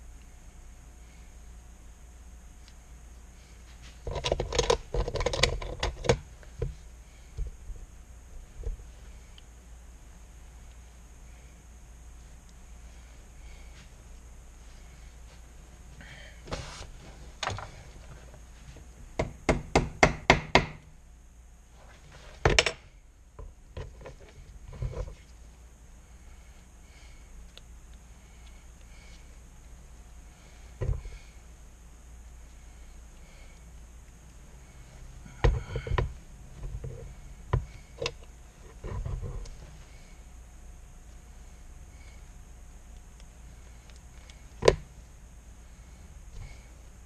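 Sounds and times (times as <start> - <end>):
soft rustling and scraping: 3.2 - 9.4, 10.4 - 19.0, 21.6 - 22.5, 23.8 - 26.7, 34.1 - 40.3.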